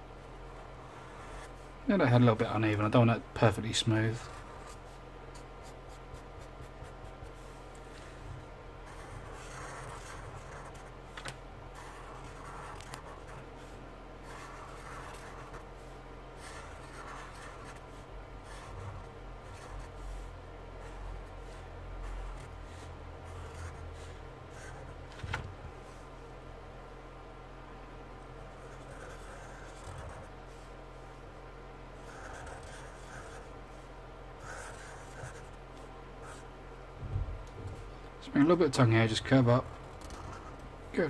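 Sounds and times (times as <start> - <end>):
faint steady hum: 0.0 - 41.0
marker pen scratching on paper: 0.5 - 1.7, 4.1 - 8.2, 8.8 - 25.0, 28.5 - 30.3, 32.0 - 33.5, 34.4 - 35.6, 39.6 - 40.6.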